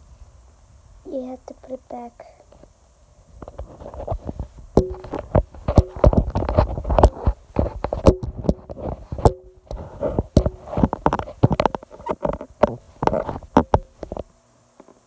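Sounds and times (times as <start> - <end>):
phone microphone handling noise: 3.3 - 15.0.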